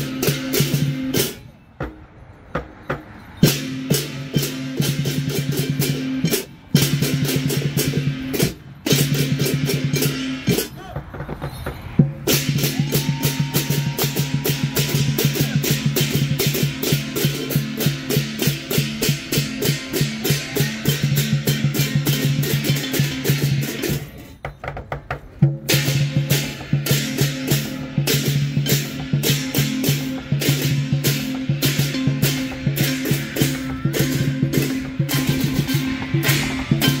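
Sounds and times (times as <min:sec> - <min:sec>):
cymbals crashing: 0:00.0 - 0:10.8, 0:11.4 - 0:24.4, 0:25.6 - 0:37.0
drum beating fast rhythm: 0:00.0 - 0:37.0
gong: 0:25.7 - 0:37.0.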